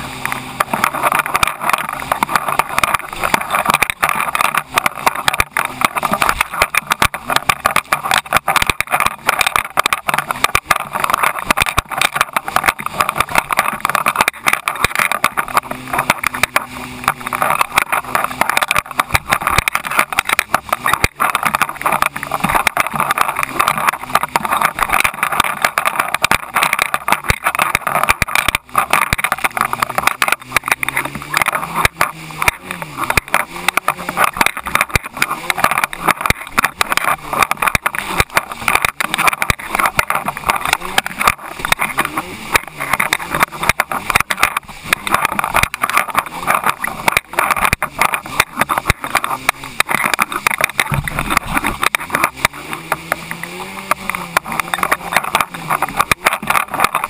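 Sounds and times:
hull slapping on waves: 0.0s - 57.0s
jet ski engine: 0.0s - 57.0s.

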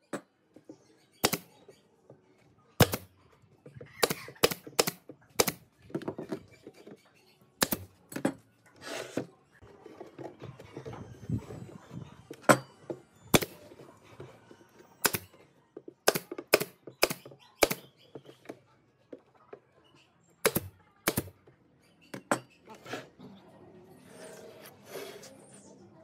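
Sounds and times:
pneumatic nailer firing: 2.8s - 3.1s.

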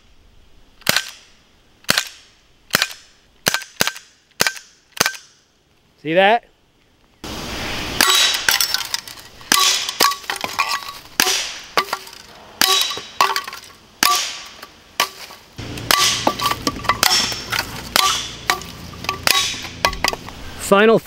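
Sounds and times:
pellets clanging on tin cans: 8.0s - 20.2s
pellet pistol shots: 9.5s - 10.2s, 11.2s - 11.7s, 14.0s - 14.6s, 15.6s - 16.3s.

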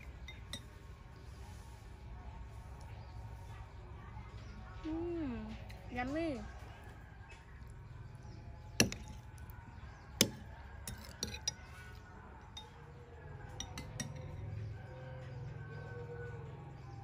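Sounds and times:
metal spoon clinking glass bowl: 10.2s - 12.0s, 13.5s - 14.4s.

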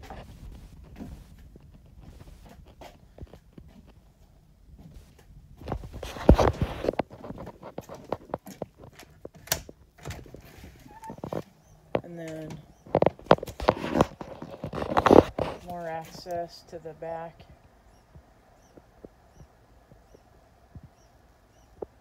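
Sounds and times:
footsteps: 0.0s - 16.7s
phone handling knocks and rustles: 5.6s - 15.8s.

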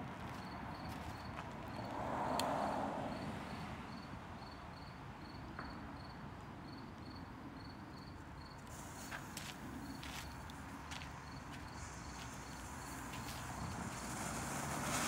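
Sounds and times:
cricket chirping: 0.2s - 14.6s
hiss: 8.7s - 10.0s, 11.5s - 15.0s.

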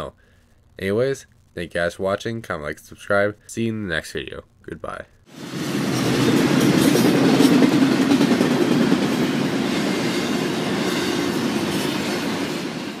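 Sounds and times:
freight train wheels on rails: 5.3s - 13.0s.

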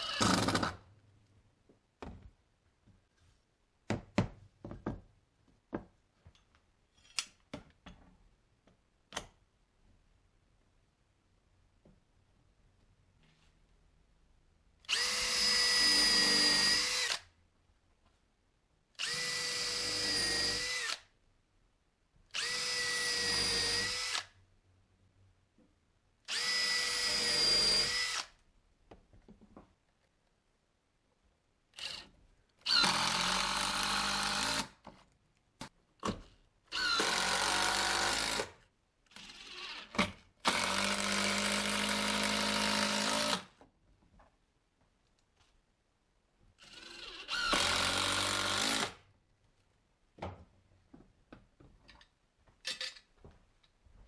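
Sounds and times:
drill press boring into wood: 0.0s - 0.7s, 26.3s - 28.3s, 31.8s - 34.7s, 36.7s - 38.5s, 39.1s - 43.4s, 46.6s - 49.0s.

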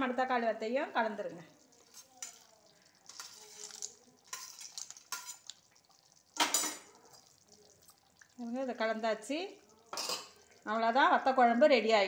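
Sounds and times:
spoon scraping steel plate: 3.1s - 5.5s.

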